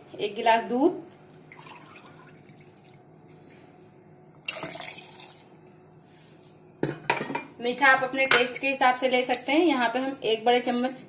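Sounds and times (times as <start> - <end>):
milk pouring into blender jar: 4.4 - 5.4.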